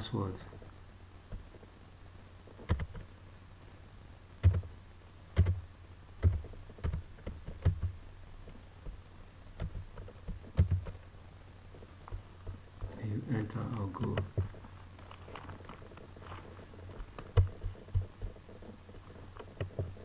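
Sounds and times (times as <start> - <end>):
low steady hum: 0.0 - 20.0
keyboard keys clicking: 2.6 - 3.1, 4.4 - 4.7, 5.4 - 5.6, 6.2 - 7.9, 9.6 - 11.0.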